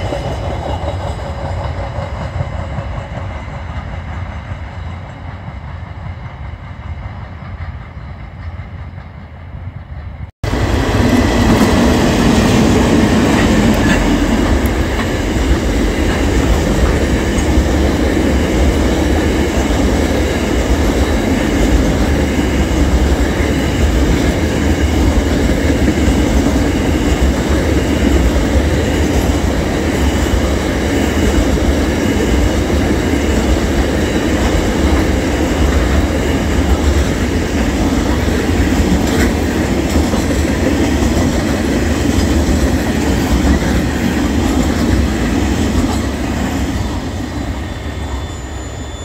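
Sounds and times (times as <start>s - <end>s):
train wheels rumbling on rails: 0.0s - 49.0s
faint wheel squeal: 47.5s - 49.0s.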